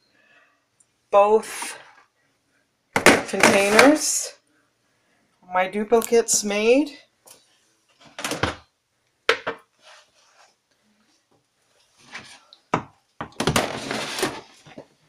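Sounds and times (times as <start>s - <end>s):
plastic bins knocking: 3.0s - 4.0s, 12.8s - 14.5s
plastic bins scraping: 3.0s - 4.1s, 13.4s - 14.9s.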